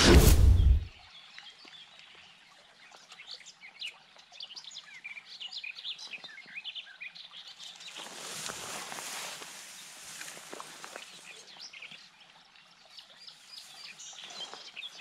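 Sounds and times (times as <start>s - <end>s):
songbirds chirping: 0.0s - 15.0s.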